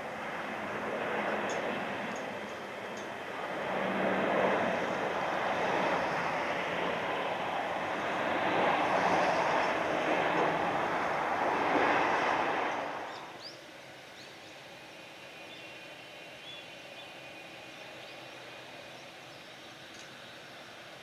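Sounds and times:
jet engine rush: 0:00.0 - 0:21.0
bird chirps: 0:13.1 - 0:14.6.

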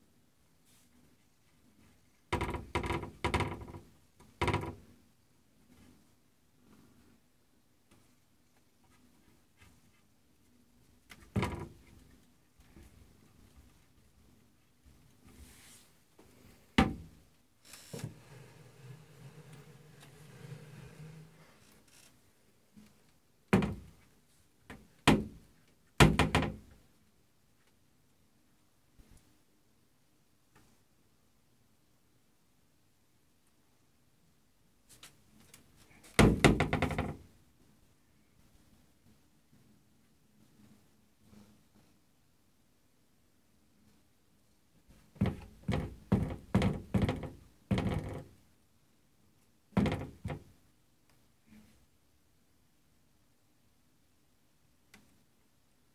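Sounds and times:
cupboard doors knocking: 0:36.2 - 0:37.2, 0:45.2 - 0:48.2, 0:49.8 - 0:50.4.

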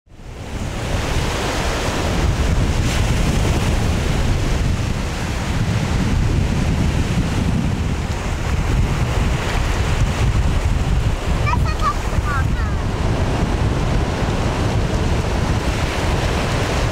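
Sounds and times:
surf breaking on beach: 0:00.1 - 0:16.9
wind buffeting microphone: 0:00.1 - 0:16.9.

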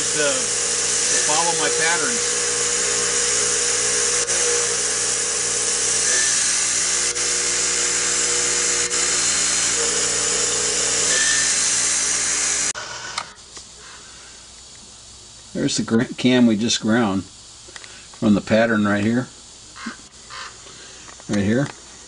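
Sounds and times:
grinding machine hissing: 0:00.0 - 0:15.9.

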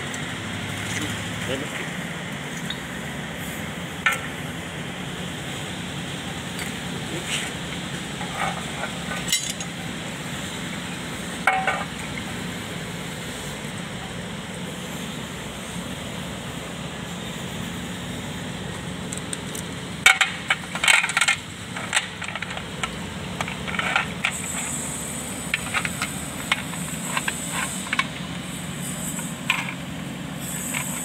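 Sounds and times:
steady low hum: 0:00.0 - 0:31.0
metal tools clinking: 0:08.2 - 0:09.7.

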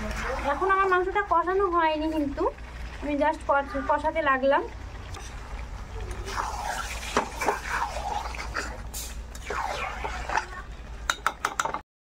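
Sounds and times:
spatula scraping a pan: 0:06.3 - 0:10.6
spatula clicking against pan: 0:11.1 - 0:11.8.

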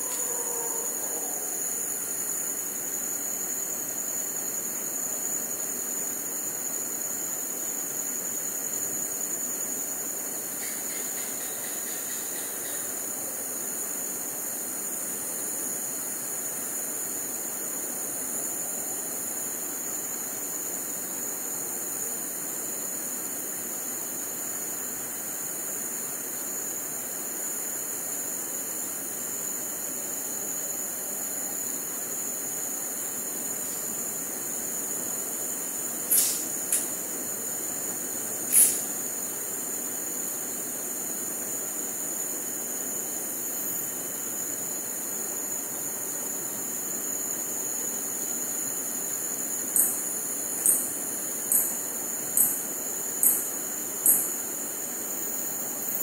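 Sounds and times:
howler monkeys roaring: 0:00.0 - 0:01.6
crickets trilling: 0:00.0 - 0:56.0.

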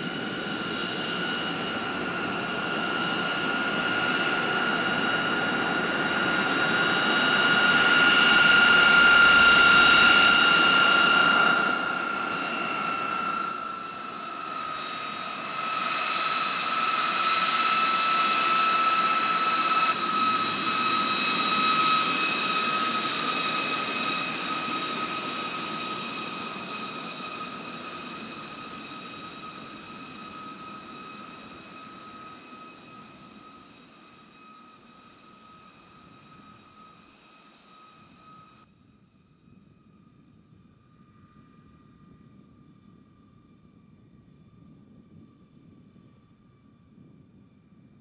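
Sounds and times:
jet engines whining: 0:00.0 - 0:38.6.

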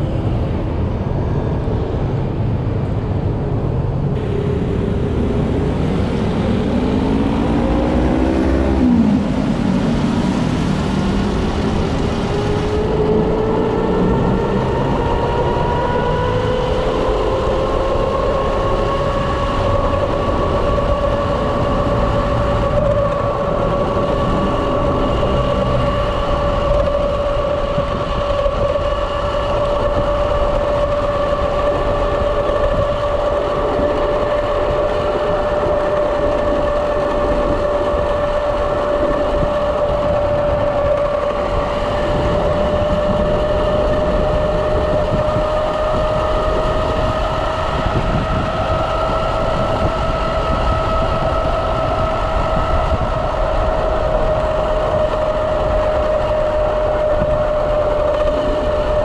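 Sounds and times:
road rumble: 0:00.0 - 0:59.0
wind: 0:00.0 - 0:59.0
electric motor whine: 0:04.2 - 0:59.0.

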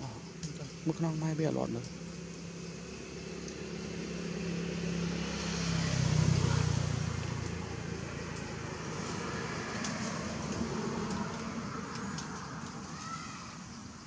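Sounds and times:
vehicle engine passing by: 0:02.4 - 0:12.9.

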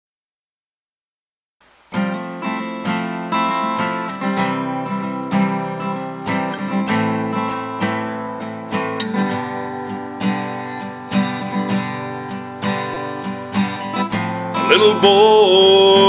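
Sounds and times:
acoustic guitar strumming: 0:01.9 - 0:16.0.

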